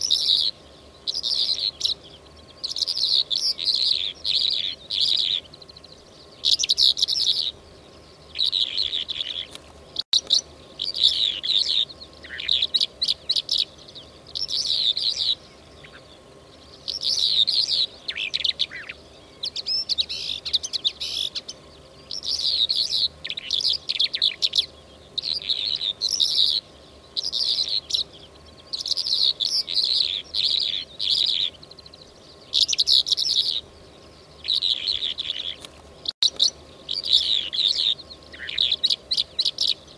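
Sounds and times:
lark chirping and trilling: 0.0 - 39.9.

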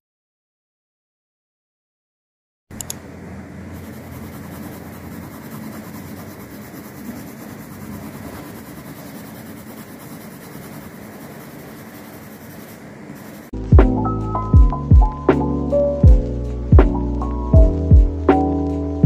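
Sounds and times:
pencil shading on paper: 3.7 - 13.6.

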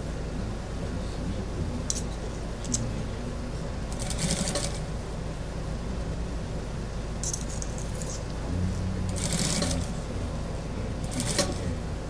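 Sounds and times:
low hum: 0.0 - 12.0
sewing machine stitching: 3.9 - 4.9, 9.1 - 10.0, 11.0 - 11.7.

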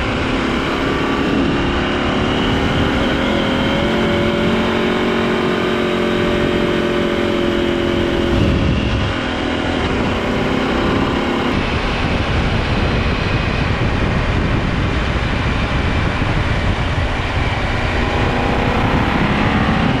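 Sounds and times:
motorcycle engine running: 0.0 - 20.0
wind rushing: 7.8 - 20.0.

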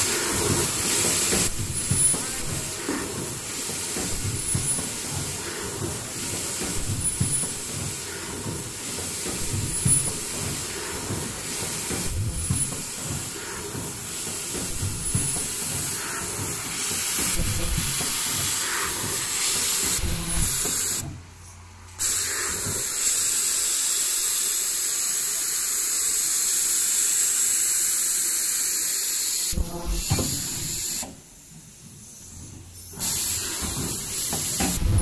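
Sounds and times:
low machine knocking: 0.0 - 21.1
machine noise with hissing: 0.0 - 35.0.

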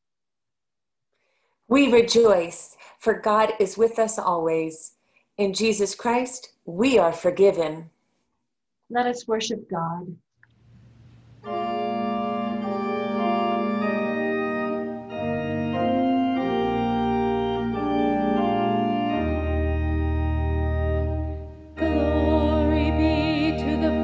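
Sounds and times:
organ playing sustained chords: 11.0 - 24.0.

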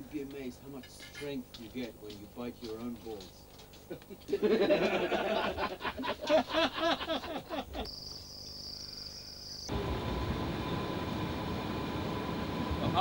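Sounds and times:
group of people laughing: 3.9 - 7.9
high insect trill: 7.8 - 9.8
boat motor humming: 9.7 - 13.0.

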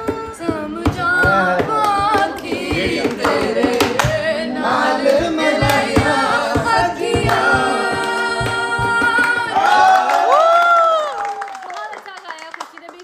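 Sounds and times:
person singing folk song: 0.0 - 9.8
people clapping along: 0.0 - 13.0.

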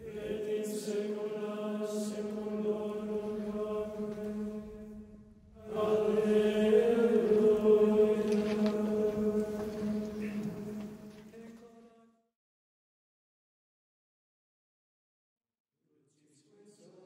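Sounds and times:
low droning chant music: 0.0 - 12.0.

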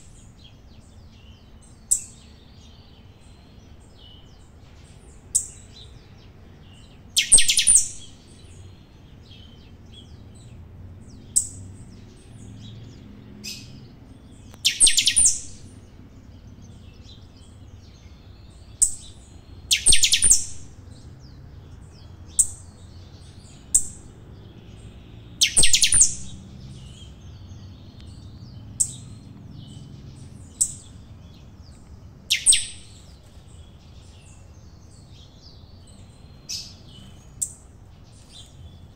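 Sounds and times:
finch chirps: 0.0 - 38.9
finch singing: 0.0 - 38.9.

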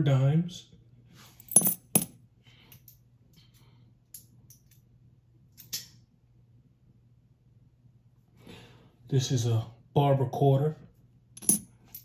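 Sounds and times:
coins clinking: 1.5 - 2.1.

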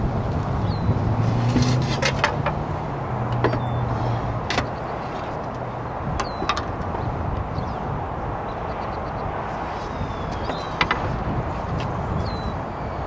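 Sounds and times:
clay roof tiles clinking: 1.5 - 2.6.

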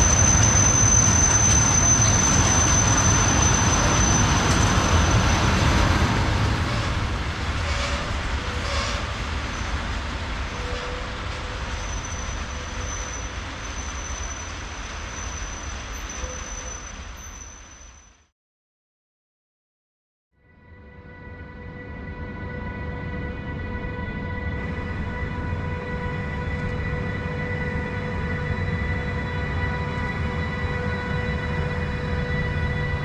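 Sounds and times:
train wheels rumbling on rails: 0.0 - 18.2.

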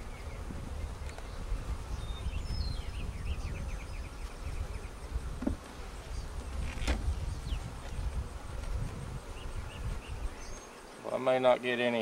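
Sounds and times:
bees buzzing: 0.0 - 12.0
knocks on wooden frames: 5.4 - 5.7.

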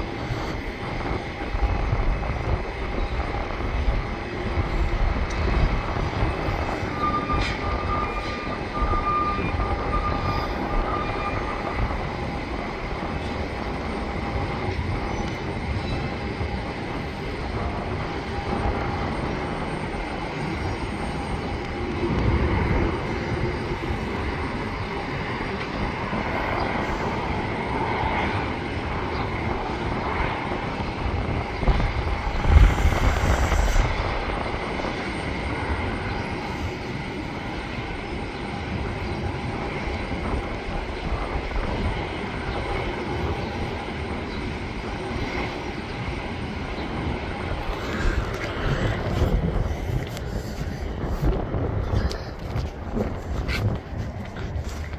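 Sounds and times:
distant jet engines: 0.0 - 54.9
wind buffeting microphone: 0.0 - 54.9.

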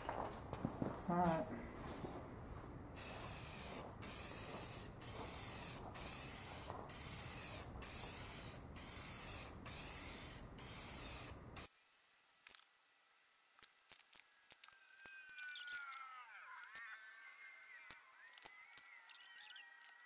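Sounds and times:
spray paint can hissing: 3.0 - 11.7.

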